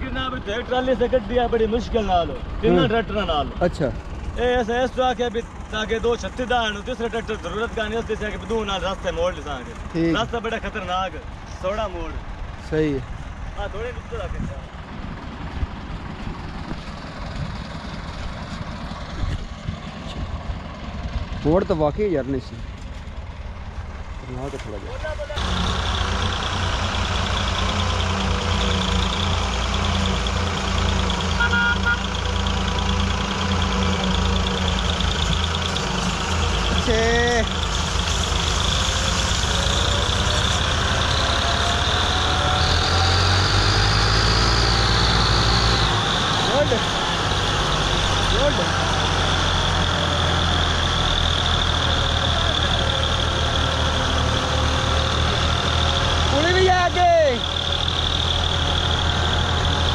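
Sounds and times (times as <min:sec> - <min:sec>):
tractor diesel engines throbbing: 0:00.0 - 0:59.9
high toot: 0:27.2 - 0:37.6.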